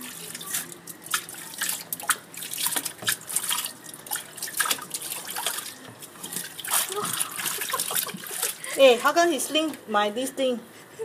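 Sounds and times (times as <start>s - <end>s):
water splashing and dripping: 0.0s - 8.8s.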